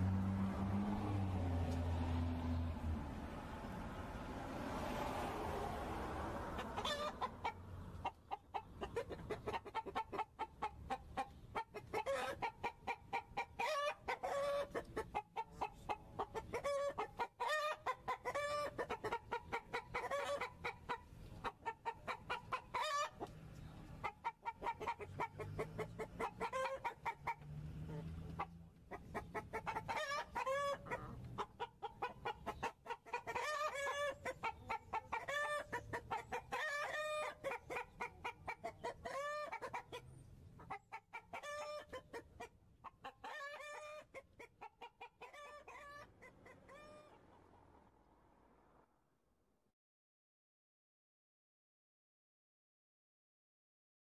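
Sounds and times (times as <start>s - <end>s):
hens clucking: 6.5s - 47.6s.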